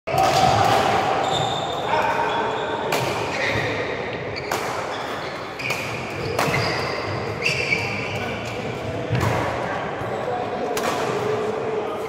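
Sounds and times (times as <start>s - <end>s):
shoes squeaking on court floor: 1.2s - 8.8s.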